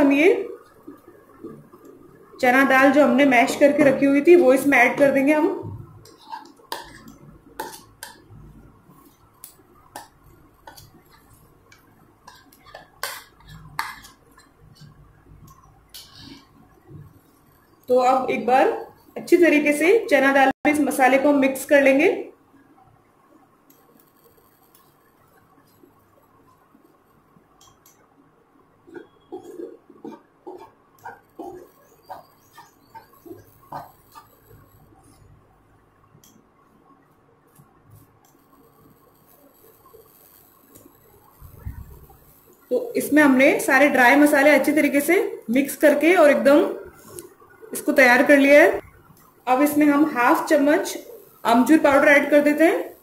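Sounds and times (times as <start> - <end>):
spatula scraping frying pan: 6.0 - 8.2, 28.9 - 34.6.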